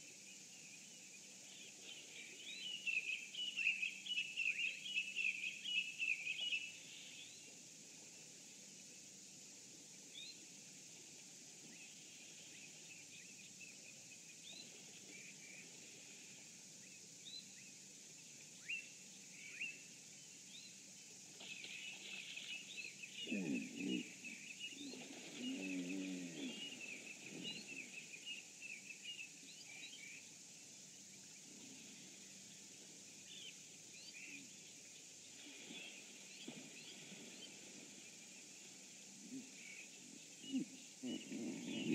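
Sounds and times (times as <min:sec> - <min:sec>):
low pitched animal call: 0:23.2 - 0:24.2.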